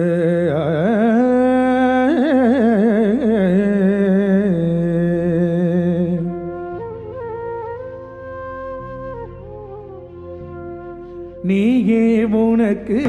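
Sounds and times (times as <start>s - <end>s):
man singing wordless phrase: 11.4s - 13.0s.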